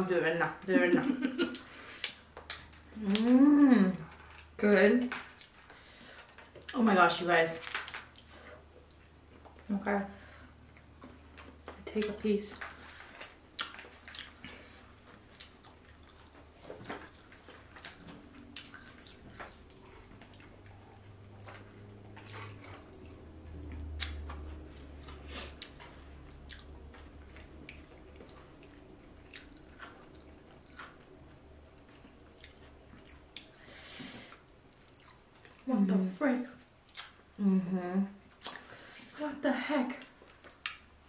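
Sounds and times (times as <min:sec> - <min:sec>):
low steady hum: 0:00.0 - 0:41.0
wet chewing and lip smacks: 0:01.6 - 0:03.2, 0:10.7 - 0:33.6, 0:34.3 - 0:35.7, 0:36.8 - 0:37.3, 0:38.3 - 0:38.7, 0:40.0 - 0:41.0.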